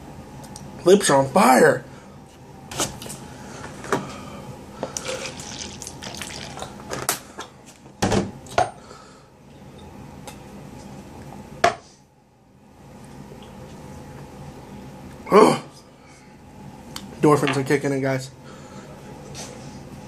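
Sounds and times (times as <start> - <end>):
person drinking: 4.8 - 6.8
liquid sloshing: 5.0 - 6.8.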